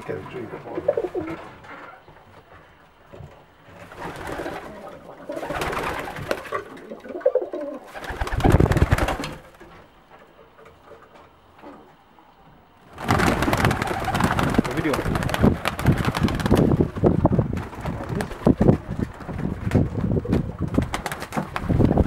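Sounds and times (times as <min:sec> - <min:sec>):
pigeons cooing: 0:00.2 - 0:02.2, 0:03.8 - 0:09.5, 0:13.0 - 0:14.6
wings flapping: 0:03.7 - 0:09.9, 0:12.9 - 0:22.0.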